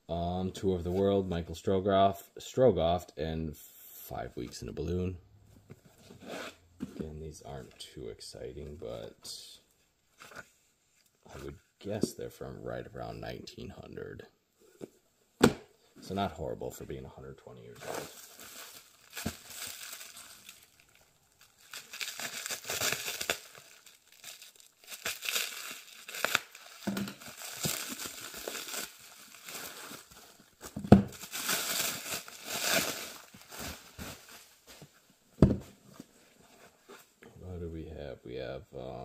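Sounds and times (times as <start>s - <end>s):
plastic wrap crinkling and tearing: 17.8s - 34.7s
books knocking on wooden table: 35.4s - 35.7s.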